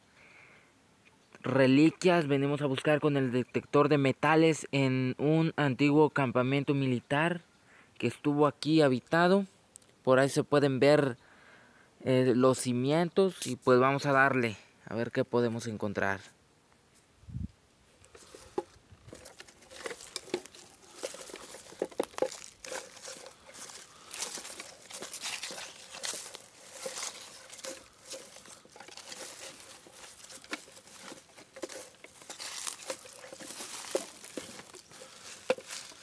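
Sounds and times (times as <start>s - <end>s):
twigs crackling and snapping: 18.0s - 36.0s
footsteps on dry pine needles: 18.1s - 36.0s.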